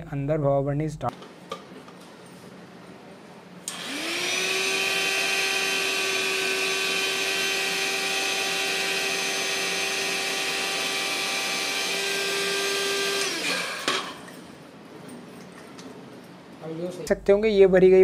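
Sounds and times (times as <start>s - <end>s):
electric air pump whining: 3.6s - 14.6s.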